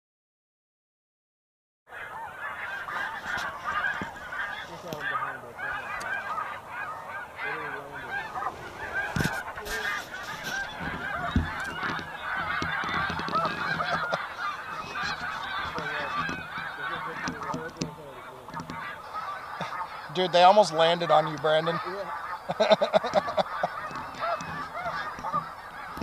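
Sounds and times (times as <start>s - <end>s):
geese honking: 1.9s - 26.0s
sharp knocks: 10.4s - 14.0s.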